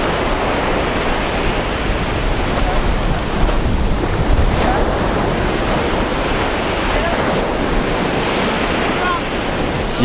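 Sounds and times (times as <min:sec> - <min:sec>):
surf washing on beach: 0:00.0 - 0:10.0
wind rumbling on microphone: 0:00.0 - 0:10.0.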